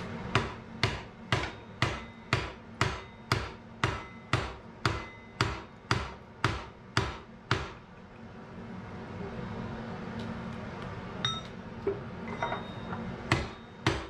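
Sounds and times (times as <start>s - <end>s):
hammer striking hot iron: 0.0s - 7.9s, 12.4s - 14.0s.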